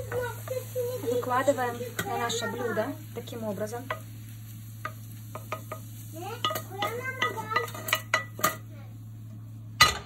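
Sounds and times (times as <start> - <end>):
spatula scraping a frying pan: 3.9 - 8.6.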